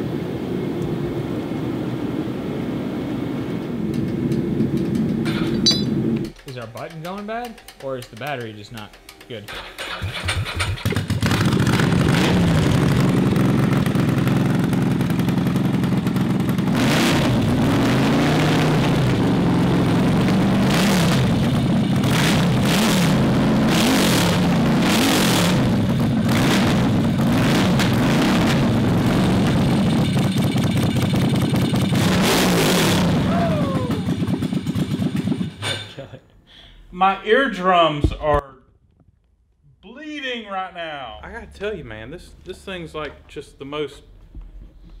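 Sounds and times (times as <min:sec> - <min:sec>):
motorcycle engine revving: 0:09.3 - 0:35.9.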